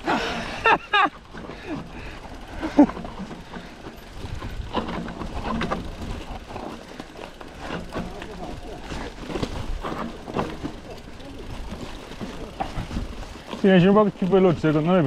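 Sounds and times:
bike rattling: 0:00.0 - 0:15.0
tyre and wind noise: 0:00.0 - 0:15.0.

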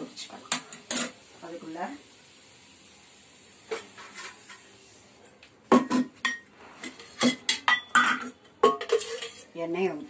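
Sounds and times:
metal pots and utensils clattering: 0:00.5 - 0:01.2, 0:03.7 - 0:04.7, 0:05.7 - 0:10.0.

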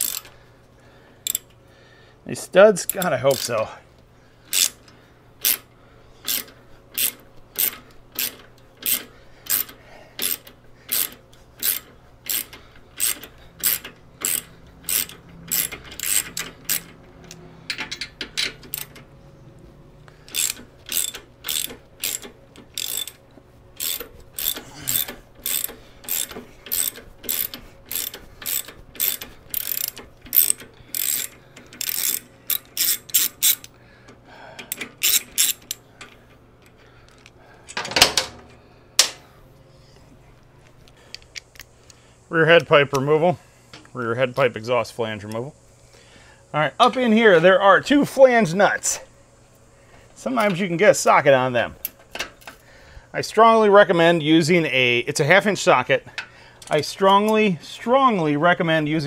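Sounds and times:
socket ratchet clicking: 0:00.0 - 0:00.4, 0:01.2 - 0:01.6, 0:02.8 - 0:03.7, 0:04.5 - 0:19.1, 0:20.2 - 0:23.2, 0:23.8 - 0:33.8, 0:34.6 - 0:37.8.

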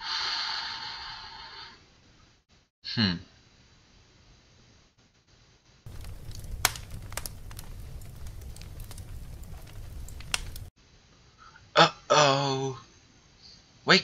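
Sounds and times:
low rumbling noise: 0:05.9 - 0:10.7
sharp clicks and crackles: 0:05.9 - 0:10.7.

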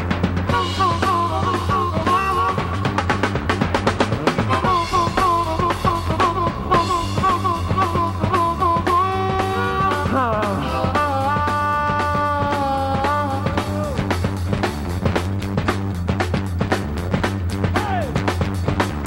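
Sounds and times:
bass guitar: 0:00.0 - 0:19.0
drums: 0:00.0 - 0:19.0
harmonica solo: 0:00.5 - 0:14.5.

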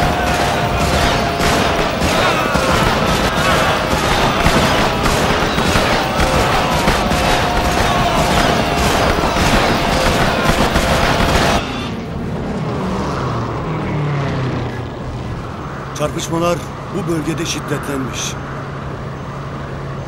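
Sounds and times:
rifle fire: 0:00.0 - 0:11.8
explosions: 0:00.0 - 0:12.9
aircraft engine drone: 0:00.0 - 0:20.0.

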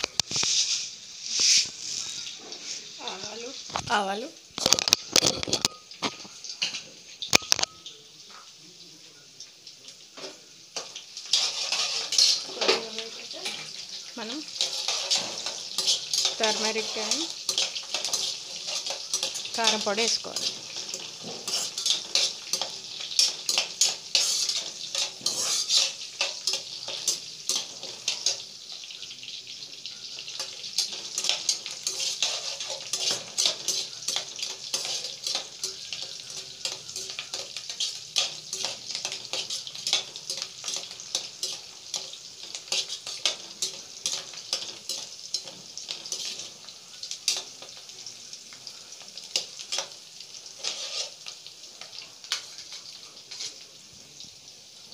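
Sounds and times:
onions sizzling in hot oil: 0:00.0 - 0:54.9
spatula scraping a pot: 0:10.9 - 0:12.8, 0:14.5 - 0:28.4, 0:30.1 - 0:47.5, 0:49.2 - 0:51.4, 0:52.3 - 0:53.6.

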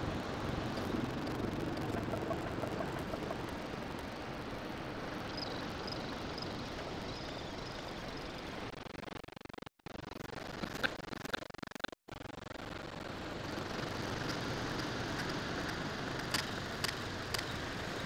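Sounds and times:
wind: 0:00.0 - 0:08.8, 0:12.6 - 0:18.0.

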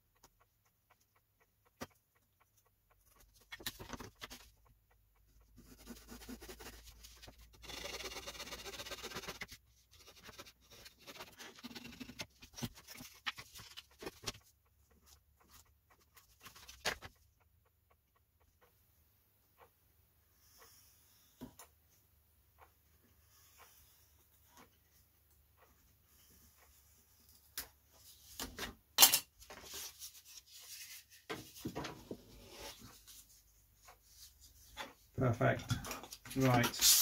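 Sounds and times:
sanding block on wood: 0:07.6 - 0:12.1.

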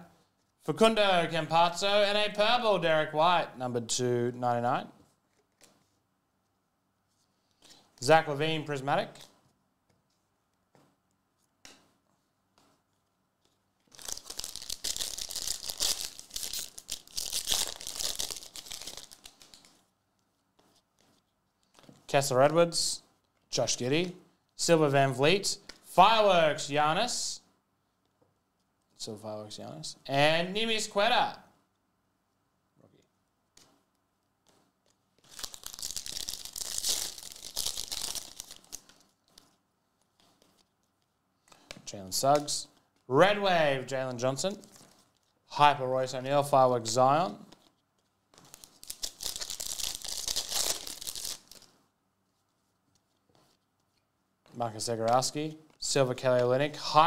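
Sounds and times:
foil wrapper crinkling and tearing: 0:13.8 - 0:19.8, 0:35.2 - 0:39.5, 0:47.5 - 0:51.8.

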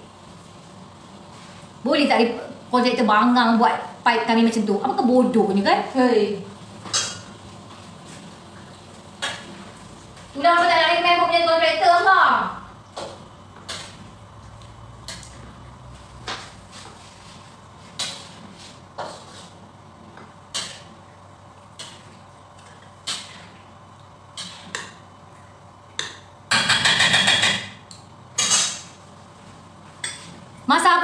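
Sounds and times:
metal spatula scraping a wok: 0:28.4 - 0:28.9.

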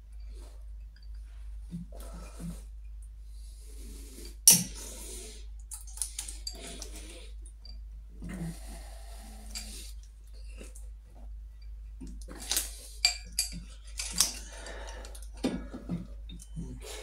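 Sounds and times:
metal parts clinking and scraping: 0:12.4 - 0:15.3.

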